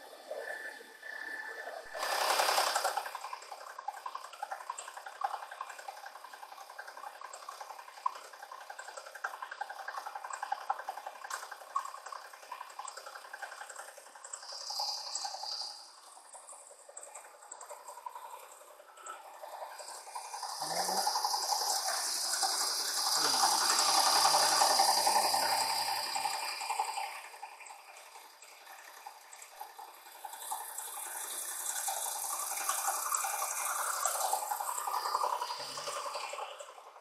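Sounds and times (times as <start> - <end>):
end mill cutting steel: 19.3 - 27.0.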